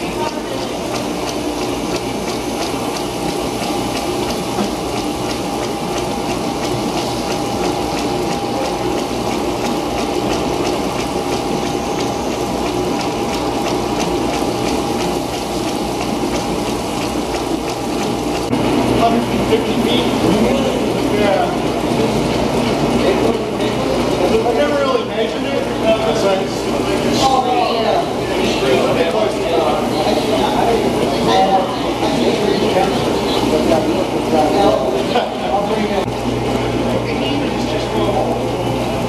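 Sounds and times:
mechanical whir of rollers: 0.0 - 39.0
steady hum: 0.0 - 39.0.

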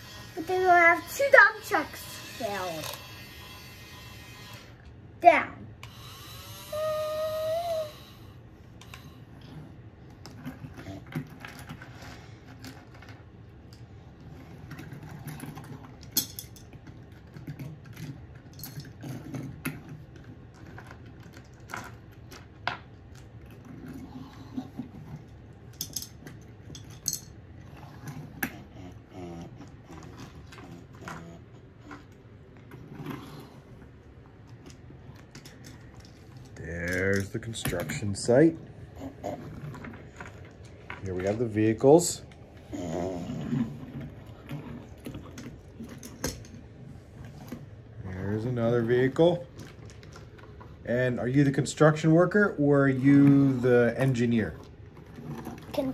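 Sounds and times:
pebbles and toy trucks clattering: 10.2 - 27.4, 30.0 - 38.6, 39.2 - 42.4.

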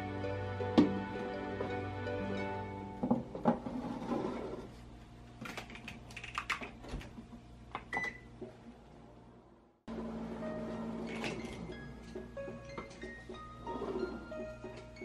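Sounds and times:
soft background music: 0.0 - 3.4, 9.9 - 15.0.

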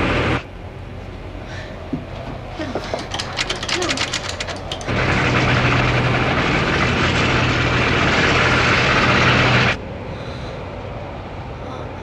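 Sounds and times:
mechanical running noise: 3.0 - 9.8.

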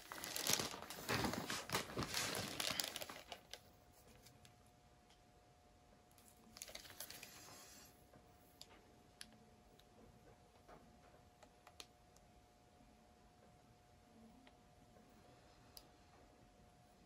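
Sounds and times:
skewer rustling on canvas: 0.0 - 3.1
faint steady hum: 0.0 - 17.0.

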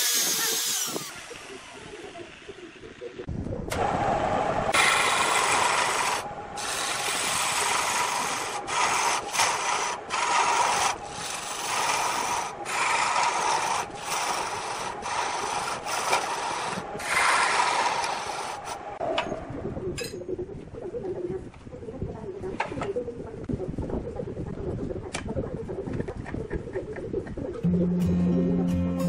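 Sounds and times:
lathe gouge scraping wood: 0.0 - 1.7, 4.8 - 18.9.

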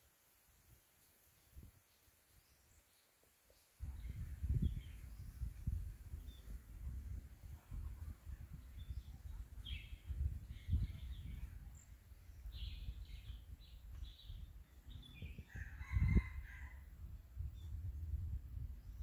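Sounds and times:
bird chirping: 8.5 - 16.3.

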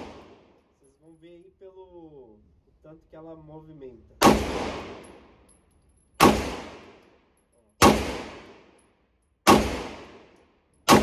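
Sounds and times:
gunshot echo: 0.0 - 0.5, 4.2 - 5.3, 6.2 - 7.0, 7.8 - 8.8, 9.4 - 11.0
pistol shots: 4.2 - 5.2, 6.2 - 7.0, 7.8 - 8.8, 9.4 - 11.0.

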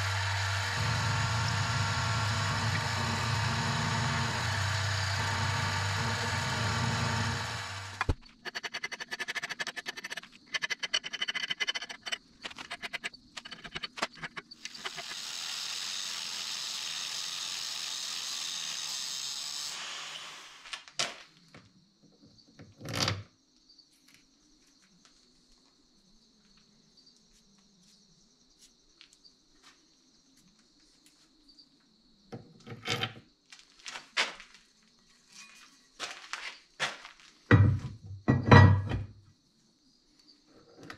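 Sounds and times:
mill cutting steel grinding: 0.0 - 20.6
sharp knocks and clunks: 37.5 - 39.2.

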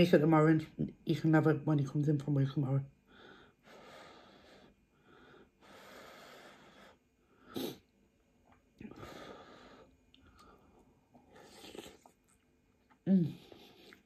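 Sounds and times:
airy breath puffs: 3.1 - 7.8
slurping noodles: 11.3 - 12.3.

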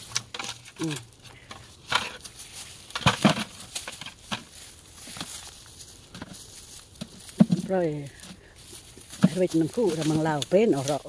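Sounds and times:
dry leaves rustling: 0.0 - 11.0
bamboo knocking against plastic bucket: 2.9 - 4.5, 7.0 - 8.4, 9.0 - 11.0.

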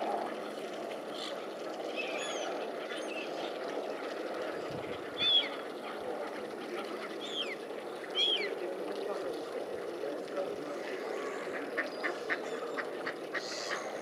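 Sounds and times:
water wash: 0.0 - 14.0
waterbird calls: 1.1 - 8.6, 10.9 - 14.0
wind noise: 4.7 - 5.3.

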